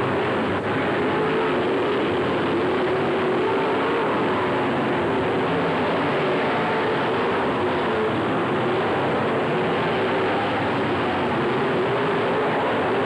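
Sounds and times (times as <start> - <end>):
race car engines droning: 0.0 - 13.0.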